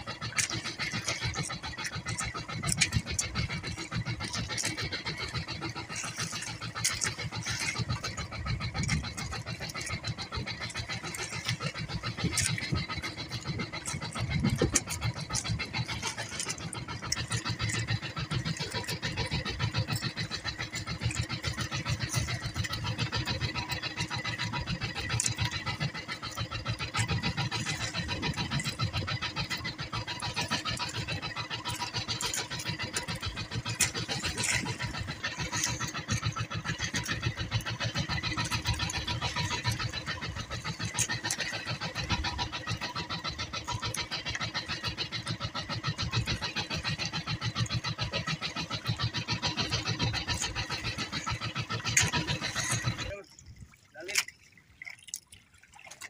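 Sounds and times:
boat engine chugging: 0.0 - 56.0.

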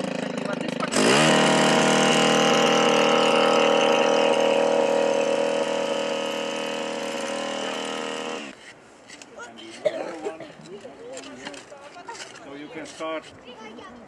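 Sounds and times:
earth auger engine running: 0.0 - 8.6.

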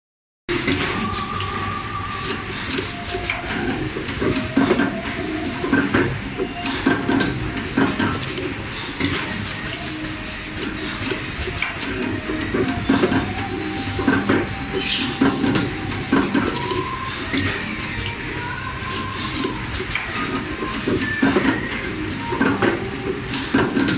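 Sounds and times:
steady mechanical hum: 0.5 - 23.9
machine clacks and knocks: 19.0 - 23.9.

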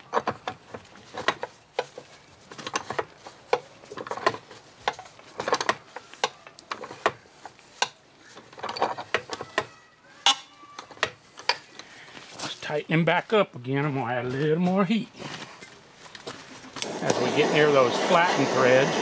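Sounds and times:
wrench metallic clicks and clanks: 0.0 - 7.2, 7.8 - 11.9.

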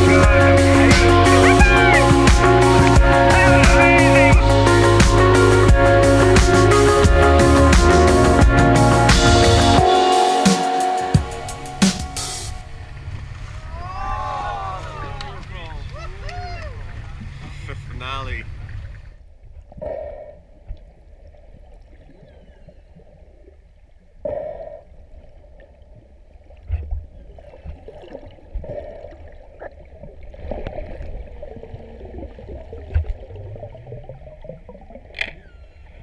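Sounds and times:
underwater rumble and gurgling: 12.6 - 36.0
brief squeak: 35.2 - 36.0.

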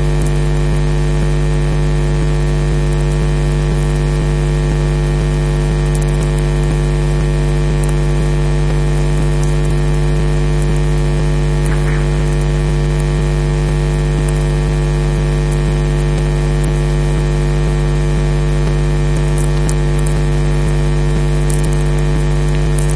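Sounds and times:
electrical mains hum: 7.1 - 17.1
faint crackles: 11.5 - 14.6.

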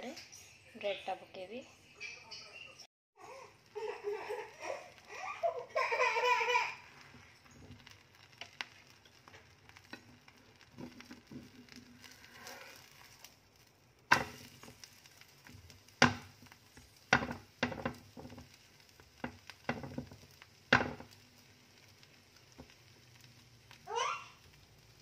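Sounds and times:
omelette sizzling in a frying pan: 3.2 - 25.0
metal spatula scraping a pan: 10.8 - 13.4.

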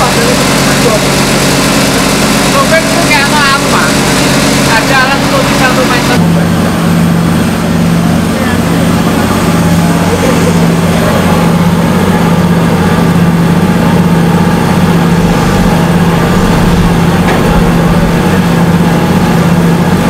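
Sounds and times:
motor hum: 0.0 - 20.0
water gushing and splashing: 14.2 - 19.9.

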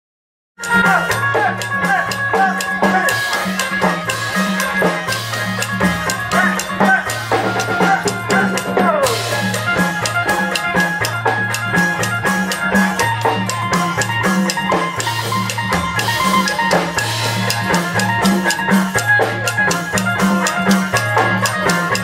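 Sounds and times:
drum beat: 0.6 - 22.0
repeating bass line: 0.6 - 22.0.

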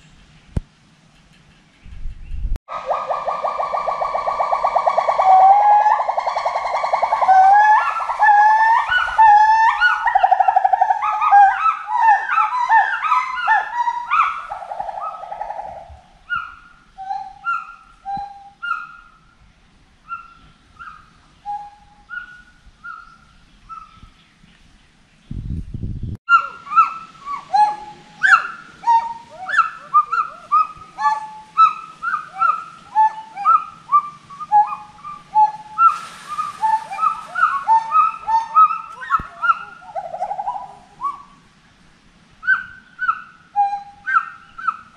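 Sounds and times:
gibbons whooping calls: 2.7 - 19.0, 26.3 - 41.4, 42.4 - 44.9.

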